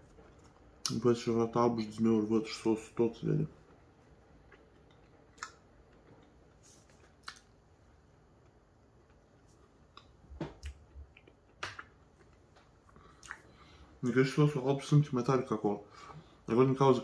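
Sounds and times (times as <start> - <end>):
mouth clicks while chewing: 4.5 - 5.6, 7.2 - 7.5.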